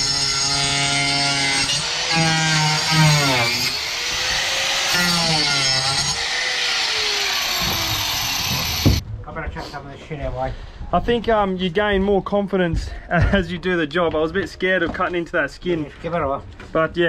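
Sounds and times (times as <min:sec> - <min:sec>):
power saw cutting wood: 0:00.0 - 0:09.0.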